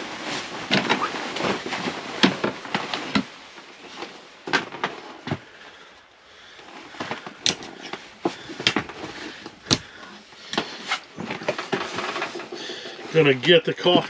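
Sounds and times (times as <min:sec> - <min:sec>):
clothing rustling: 0:00.0 - 0:14.0
sharp clicks and knocks: 0:07.0 - 0:12.6.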